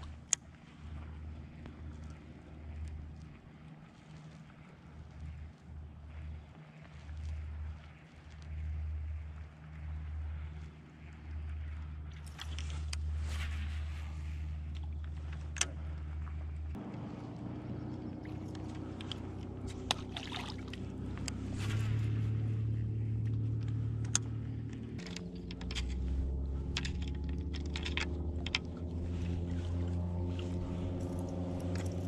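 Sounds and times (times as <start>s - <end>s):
sustained low chords: 11.0s - 32.0s.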